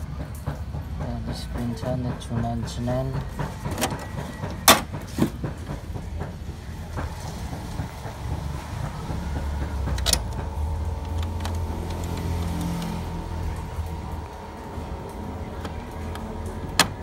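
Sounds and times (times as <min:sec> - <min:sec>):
low steady rumble: 0:05.6 - 0:17.0.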